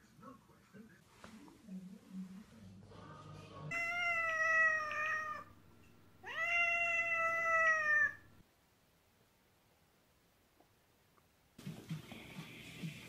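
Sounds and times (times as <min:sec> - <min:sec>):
cat meowing: 0:03.7 - 0:05.6, 0:06.2 - 0:08.4.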